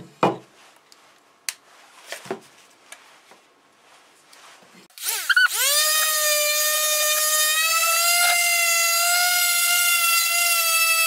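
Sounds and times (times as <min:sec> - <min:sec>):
orbital sander whining: 0:05.0 - 0:11.0.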